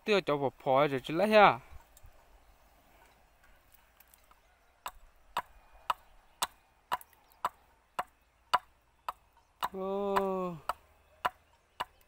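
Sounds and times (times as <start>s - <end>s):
axe chopping wood: 4.8s - 12.0s.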